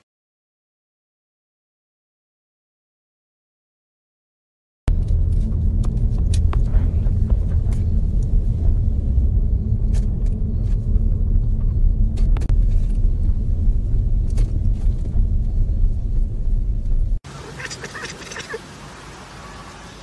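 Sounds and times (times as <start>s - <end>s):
car road and wind noise: 4.9s - 20.0s.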